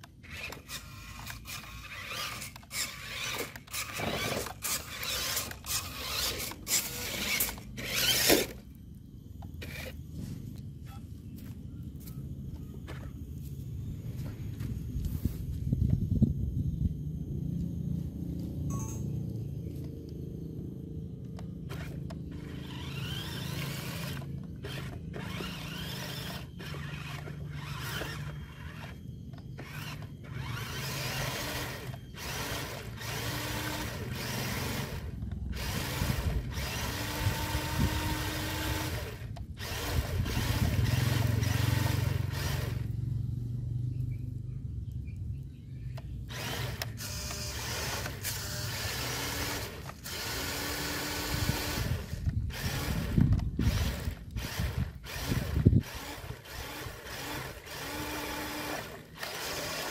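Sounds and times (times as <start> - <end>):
toy truck motor whining: 0.0 - 10.3, 21.4 - 43.0, 46.2 - 59.9.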